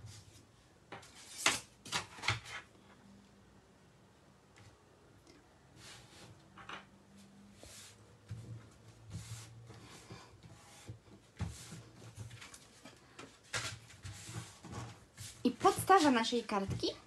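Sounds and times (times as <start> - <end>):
paper rubbing and rustling: 7.7 - 16.4.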